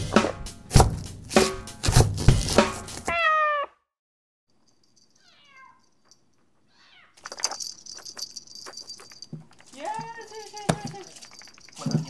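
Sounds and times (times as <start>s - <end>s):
knife chopping on cutting board: 0.1s - 3.1s
kitten meowing: 3.1s - 3.7s, 5.2s - 5.8s, 6.7s - 7.2s
high jingling: 4.5s - 12.0s.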